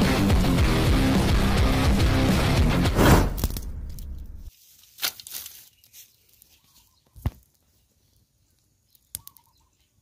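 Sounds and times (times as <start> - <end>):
twigs cracking in fire: 3.2 - 6.5.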